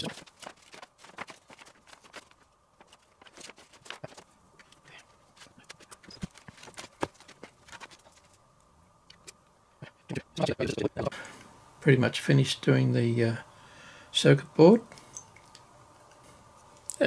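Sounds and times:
clicks taps and crinkles of plastic: 0.0s - 8.4s.

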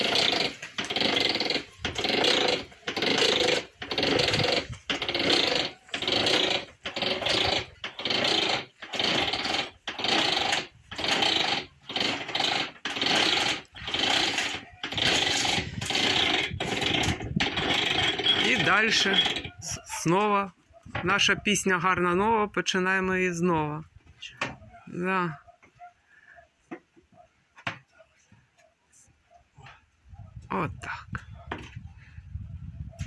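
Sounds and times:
grape crusher grinding: 0.0s - 20.0s.

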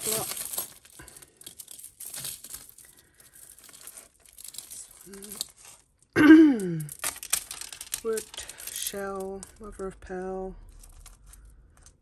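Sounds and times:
beads clicking and rattling: 0.0s - 12.0s.

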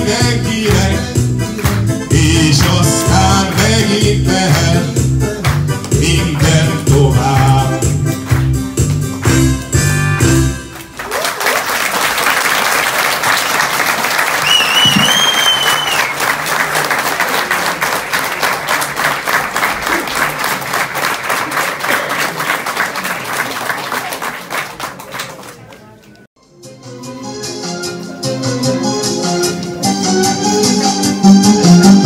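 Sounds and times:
song ending: 0.0s - 11.0s, 26.4s - 32.0s
audience applause: 10.7s - 26.2s
person whistling in crowd: 14.4s - 16.2s.

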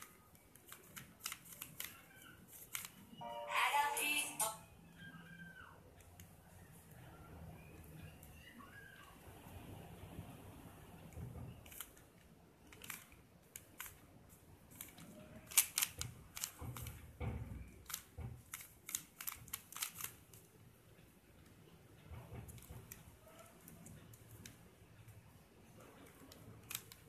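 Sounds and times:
puzzle cube layers clicking: 0.0s - 3.0s, 11.6s - 14.1s, 14.7s - 17.0s, 17.8s - 20.5s.

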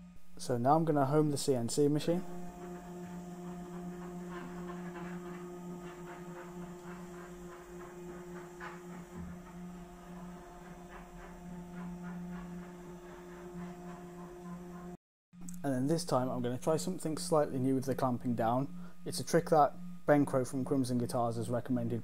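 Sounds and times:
stepper motors humming: 0.0s - 15.0s.

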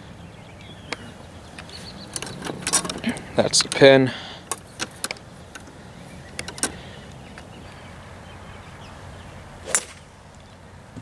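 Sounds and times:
faint outdoor background: 0.0s - 11.0s
golf club striking ball: 9.6s - 10.2s.

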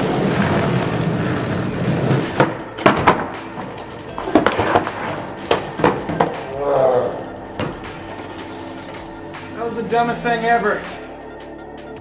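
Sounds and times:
skateboard clacks and knocks: 0.0s - 6.4s
skateboard wheels rolling on asphalt: 0.0s - 6.4s.

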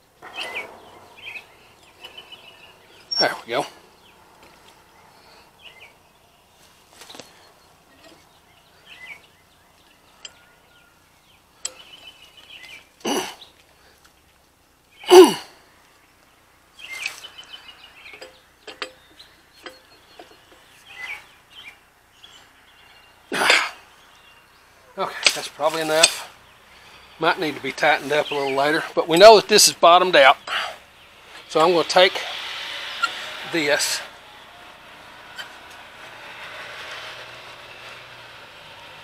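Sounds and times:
faint birds chirping: 0.0s - 39.0s.

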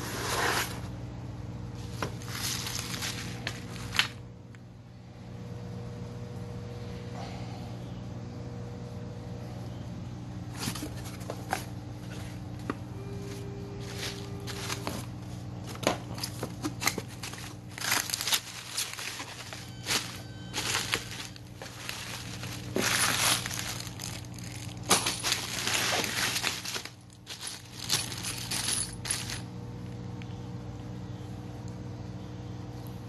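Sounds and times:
bubble wrap and plastic crinkling: 1.8s - 4.2s, 13.1s - 29.4s
metal bolts clinking in a bag: 13.8s - 15.0s, 16.1s - 29.5s.

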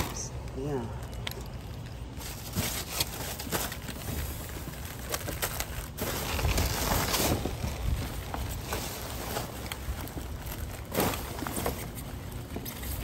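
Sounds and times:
plastic bags rustling and crinkling: 0.0s - 13.0s.

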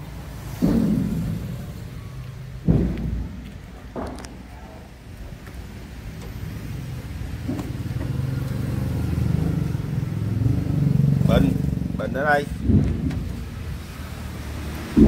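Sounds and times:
diesel truck engine running: 4.9s - 15.0s.

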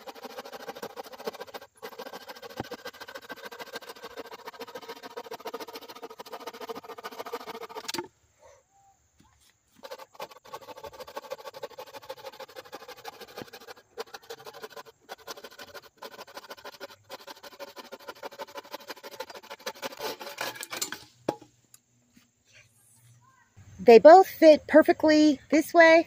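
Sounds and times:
saw rasping through wood: 0.0s - 8.1s, 9.8s - 20.8s.

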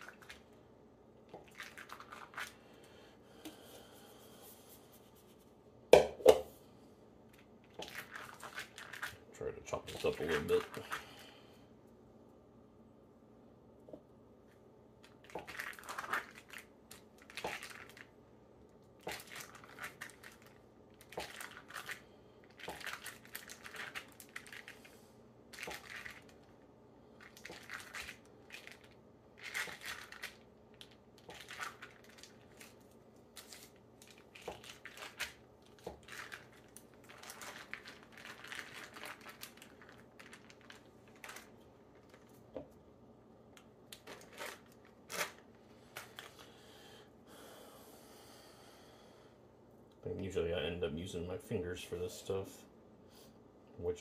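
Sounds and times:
foil wrapper crinkling: 0.0s - 0.4s, 1.4s - 2.6s, 7.3s - 9.2s, 9.8s - 11.3s, 15.0s - 18.1s, 19.0s - 26.6s, 27.2s - 42.5s, 43.9s - 46.5s.

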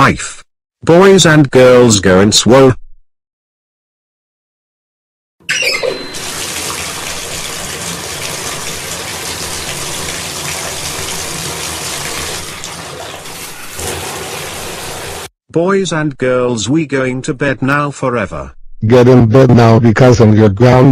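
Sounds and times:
shower water spraying: 6.0s - 15.3s.

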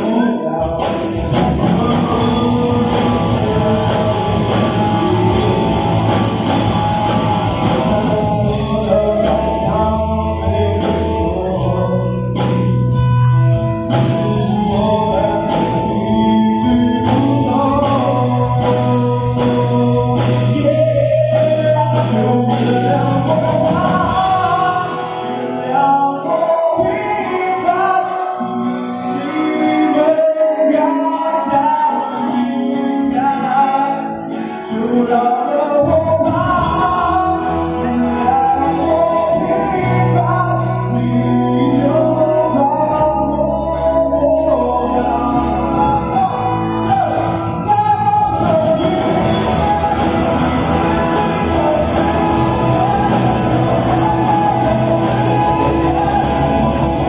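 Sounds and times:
drum kit: 0.0s - 57.0s
electric guitars: 0.0s - 57.0s
man singing: 0.0s - 57.0s.

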